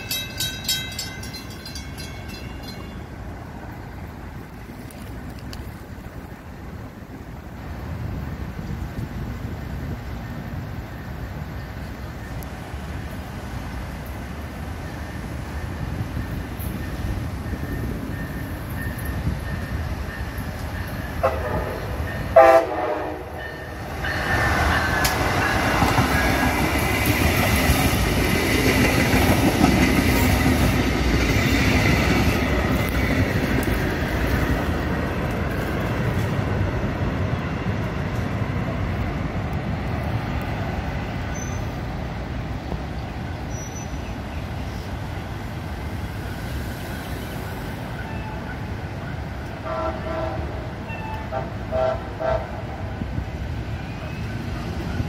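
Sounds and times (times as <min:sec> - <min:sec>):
train passing with wheel noise: 0:00.0 - 0:55.0
train horn blast: 0:21.2 - 0:23.7, 0:49.6 - 0:52.8.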